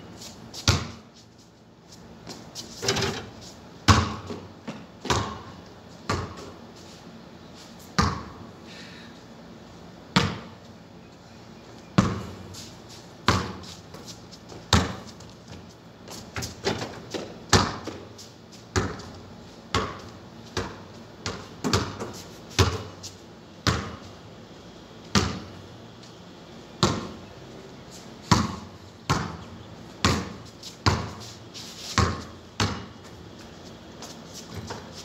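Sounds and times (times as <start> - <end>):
basketball bouncing on concrete: 0.6 - 1.1, 2.2 - 6.6, 8.0 - 8.4, 10.1 - 10.6, 12.0 - 12.4, 13.2 - 18.1, 18.7 - 23.0, 23.6 - 24.2, 25.0 - 25.6, 26.8 - 27.2, 28.2 - 31.2, 31.9 - 35.0.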